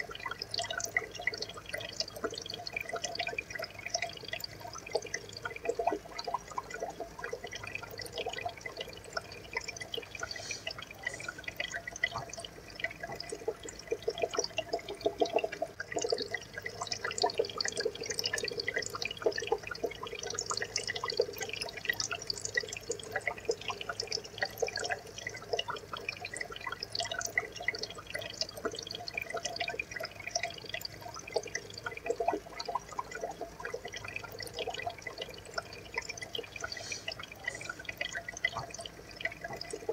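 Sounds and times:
water trickling and dripping: 0.0 - 39.9.

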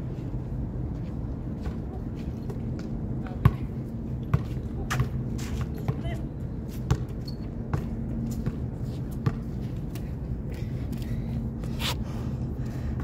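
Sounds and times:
steady low hum: 0.0 - 13.0
basketball bouncing on court: 3.4 - 3.7, 4.3 - 6.1, 6.9 - 9.5.

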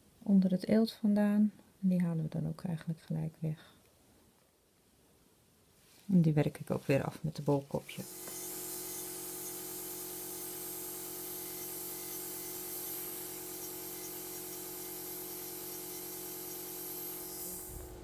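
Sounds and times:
pedicure drill whirring: 8.0 - 18.0.

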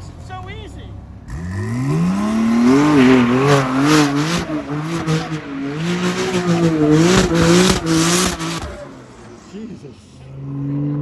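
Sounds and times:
car engine revving hard: 1.3 - 9.5.

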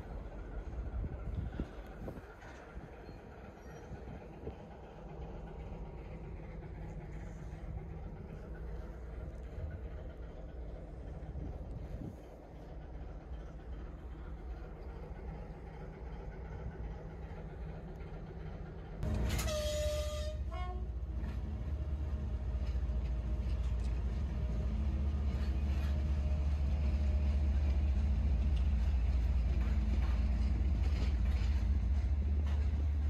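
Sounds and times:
train wagons rolling: 0.0 - 33.0
train horn blast: 19.0 - 21.0.

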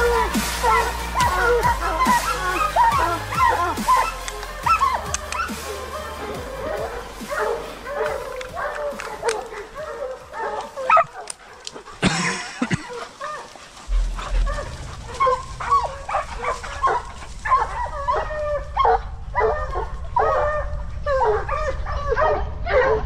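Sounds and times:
hounds yelping and barking: 0.0 - 23.0
rustling: 12.6 - 21.0
low microphone rumble: 13.7 - 23.0.

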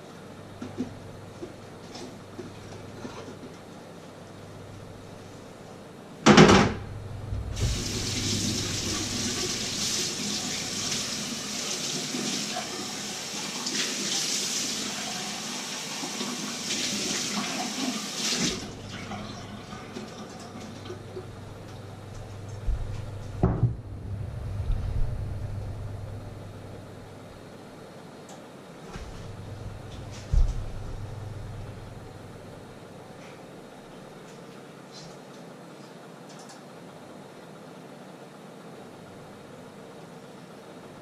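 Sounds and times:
knocks: 23.4 - 23.8.

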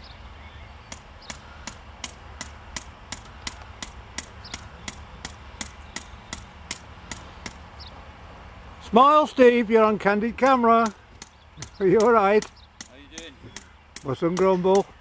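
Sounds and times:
hammer striking metal: 0.9 - 7.6.

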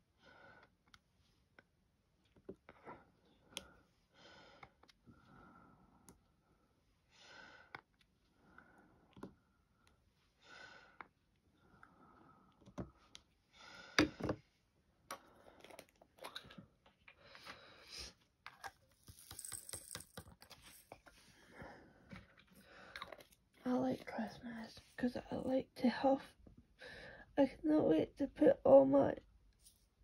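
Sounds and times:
soft breathing: 2.6 - 14.6.

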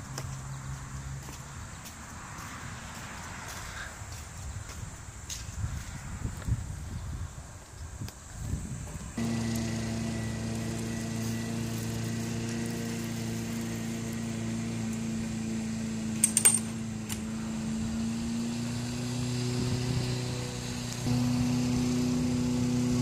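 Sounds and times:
motor humming: 9.2 - 23.0.

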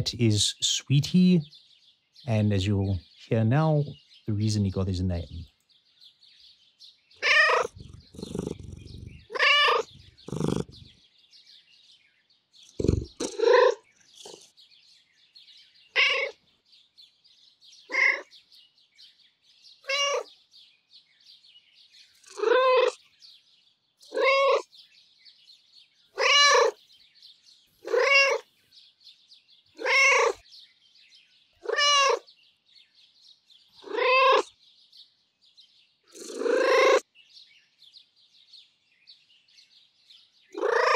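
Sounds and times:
cat meowing: 7.2 - 10.9, 12.8 - 14.4, 15.9 - 16.4, 17.9 - 18.3, 19.8 - 20.3, 22.3 - 23.0, 24.1 - 24.7, 26.2 - 26.8, 27.8 - 28.4, 29.8 - 30.4, 31.6 - 32.3, 33.8 - 34.5, 36.2 - 37.0, 40.6 - 40.9
cat purring: 7.2 - 10.9, 12.7 - 14.5, 22.2 - 23.0, 36.1 - 37.0.

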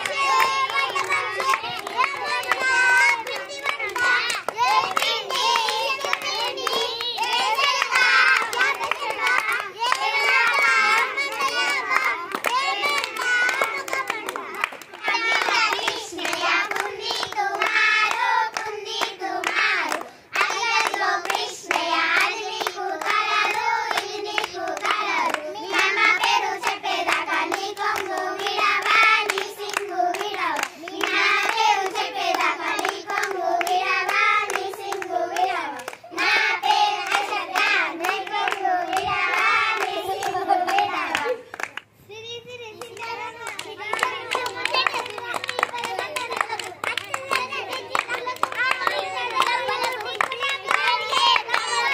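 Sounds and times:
girls singing together: 0.0 - 41.6, 46.7 - 51.9
hands clapping in rhythm: 0.0 - 42.0, 42.8 - 51.9.

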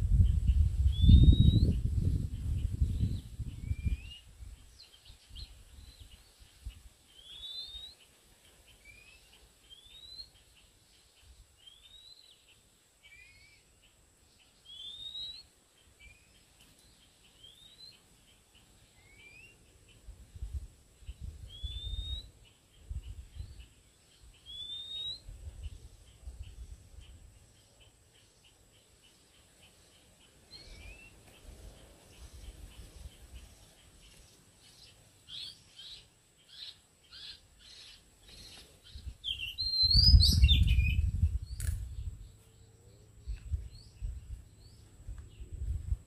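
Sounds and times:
bird singing whistled notes: 0.0 - 46.0.

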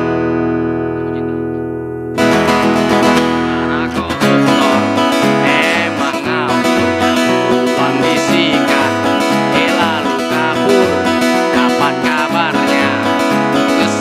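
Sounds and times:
acoustic guitar strumming: 0.0 - 14.0
mandolin picking: 0.0 - 14.0
low bass note: 10.6 - 11.2.

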